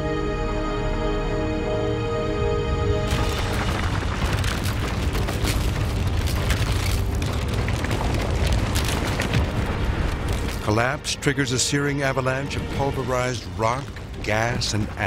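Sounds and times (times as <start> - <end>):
sustained musical tones: 0.0 - 3.7
deep rumbling roar with crackling: 3.1 - 15.0.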